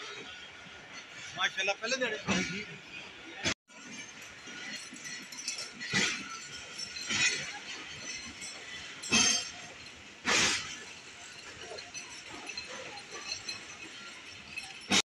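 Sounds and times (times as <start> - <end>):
train wheels clacking over rail joint: 3.7 - 15.0.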